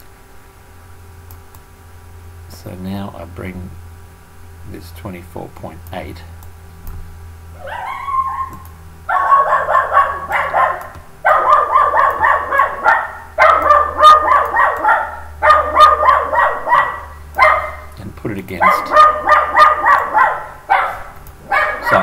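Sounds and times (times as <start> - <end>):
animal calling loudly: 7.5 - 17.9, 18.6 - 22.0.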